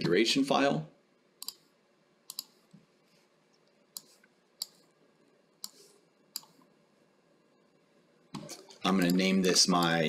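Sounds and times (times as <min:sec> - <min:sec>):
faint room hum: 0:00.0 - 0:10.0
computer mouse clicks: 0:01.4 - 0:01.7, 0:02.3 - 0:02.8, 0:03.6 - 0:04.9, 0:05.6 - 0:06.7.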